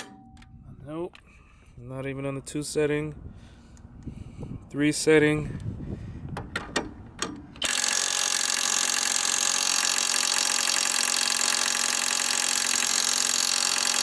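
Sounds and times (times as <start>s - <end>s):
impact wrench hammering: 0.0s - 0.5s.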